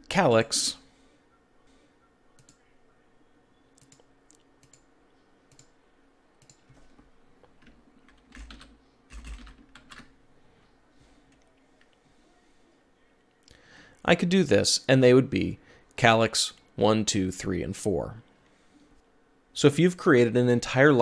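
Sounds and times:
computer keyboard typing: 3.8 - 4.9, 7.6 - 10.1
mouse clicks: 3.8 - 4.9.

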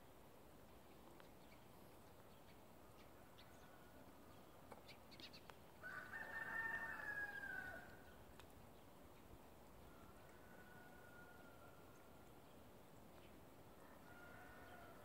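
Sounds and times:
rooster crowing: 5.8 - 8.0, 9.9 - 11.8, 13.8 - 15.0.

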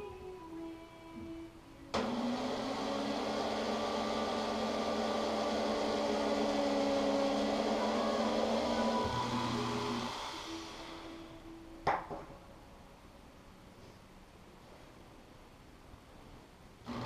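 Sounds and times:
electric power tool running: 1.9 - 11.4.

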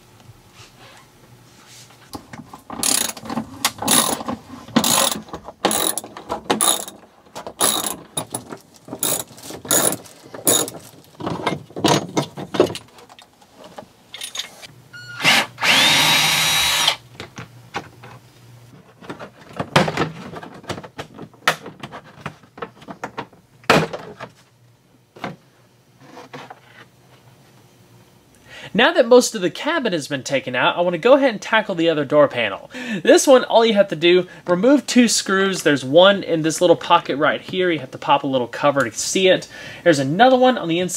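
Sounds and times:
knocks of hardware being handled: 2.2 - 14.6
hand ratchet clicking: 2.8 - 3.2, 3.8 - 4.2, 4.8 - 6.0, 6.6 - 7.0, 7.6 - 8.4, 9.0 - 10.8
cordless drill running: 4.8 - 6.0, 7.6 - 8.0, 15.2 - 17.0.

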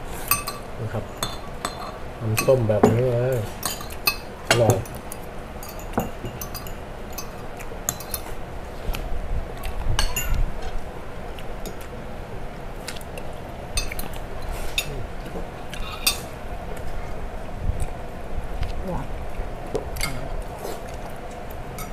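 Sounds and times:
cutlery clinking on plates: 5.6 - 8.3.

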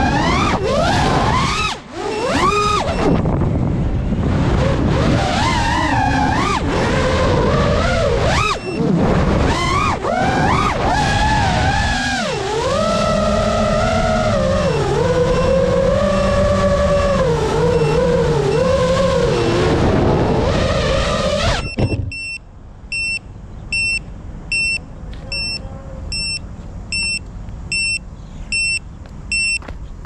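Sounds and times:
drone motors whirring: 0.0 - 22.4
high electronic beep: 2.1 - 3.2, 21.6 - 29.6.

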